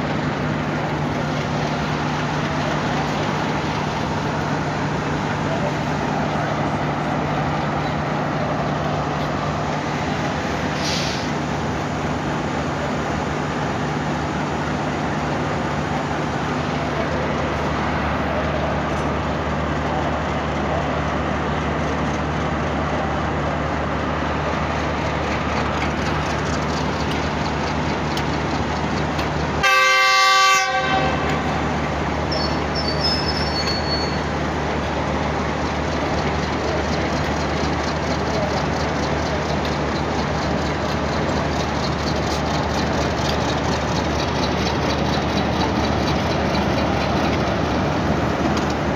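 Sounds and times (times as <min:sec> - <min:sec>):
diesel locomotive engine drone: 0:00.0 - 0:48.9
locomotive horn blast: 0:29.6 - 0:31.7.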